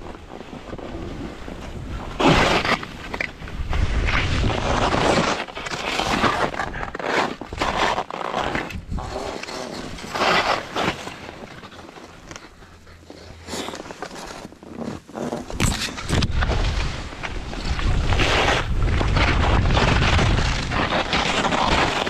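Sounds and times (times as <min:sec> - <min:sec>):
wind rumble on microphone: 0:00.0 - 0:07.9, 0:08.6 - 0:10.6, 0:15.4 - 0:22.0
skis scraping through powder snow: 0:00.0 - 0:22.0.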